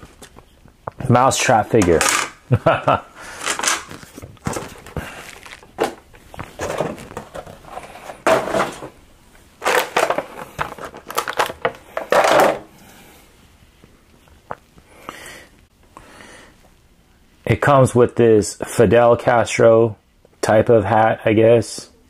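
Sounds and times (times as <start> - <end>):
plastic packaging crinkling: 3.3 - 8.9, 9.6 - 12.6.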